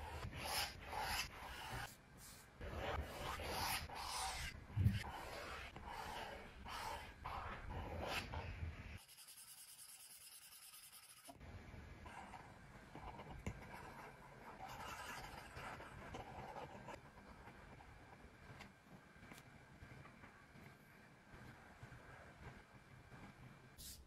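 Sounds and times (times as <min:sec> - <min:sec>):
stylus scratching on tablet screen: 0:00.0 - 0:11.4, 0:12.1 - 0:18.6.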